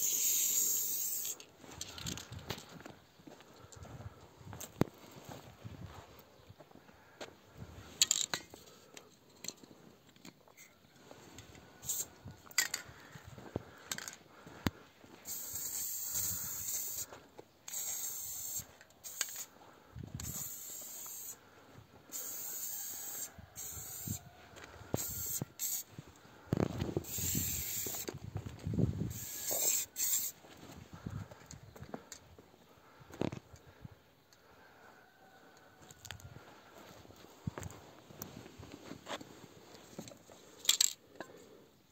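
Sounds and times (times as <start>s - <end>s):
spray paint can hissing: 0.0s - 1.4s, 11.8s - 12.1s, 15.2s - 17.1s, 17.7s - 19.5s, 20.2s - 21.4s, 22.1s - 24.2s, 25.0s - 25.9s, 27.0s - 28.1s, 29.1s - 30.4s.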